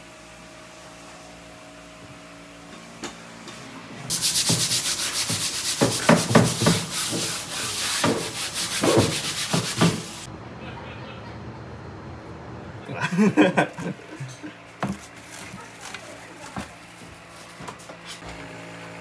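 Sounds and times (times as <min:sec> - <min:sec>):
cutting board being scrubbed: 0:04.1 - 0:10.3.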